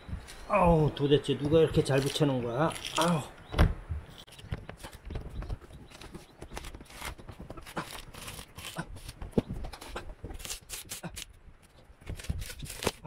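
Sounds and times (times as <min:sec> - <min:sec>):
tape tearing: 0:01.9 - 0:03.2, 0:06.5 - 0:13.0.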